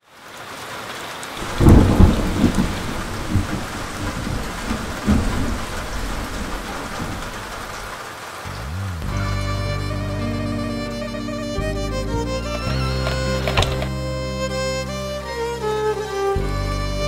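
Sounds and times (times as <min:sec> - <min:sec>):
steady rain: 0:00.0 - 0:17.0
rolling thunder: 0:01.4 - 0:08.9.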